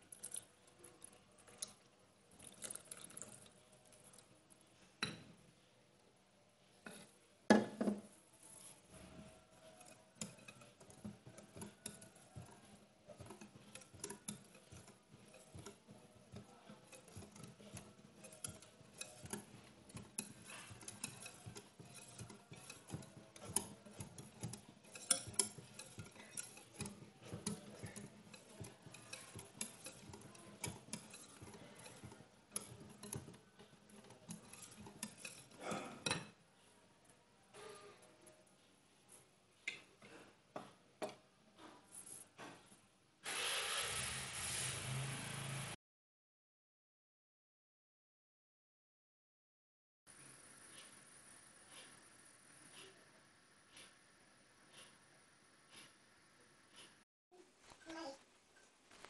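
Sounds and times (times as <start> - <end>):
whisk clinking in glass bowl: 9.2 - 36.3.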